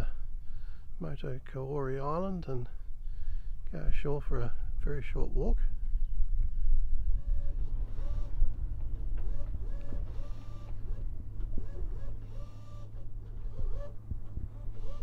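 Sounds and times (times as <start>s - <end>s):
steady low hum: 0.0s - 15.0s
small motor whining: 7.1s - 15.0s.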